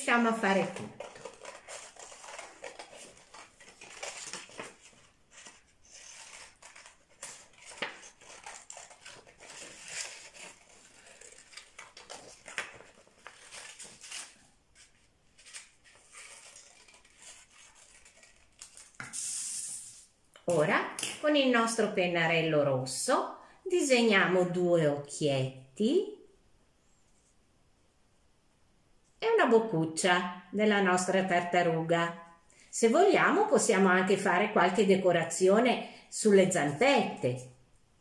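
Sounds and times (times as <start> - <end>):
scissors snipping paper: 0.4 - 19.1.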